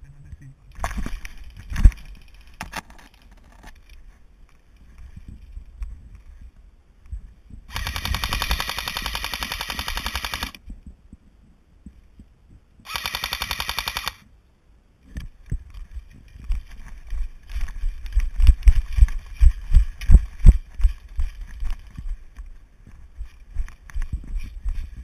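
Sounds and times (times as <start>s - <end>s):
camera and gear knocking: 2.6s - 3.7s
airsoft rifle full-auto burst: 7.7s - 10.6s, 12.9s - 14.2s
running footsteps on stony track: 15.2s - 25.0s.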